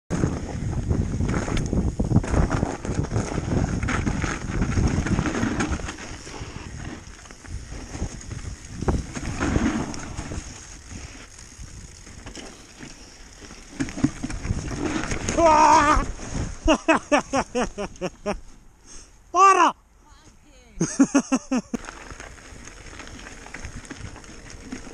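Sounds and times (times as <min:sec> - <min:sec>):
wind rushing over microphone: 0:00.1 - 0:12.2
bike knocking and rattling: 0:00.1 - 0:18.2, 0:21.0 - 0:24.9.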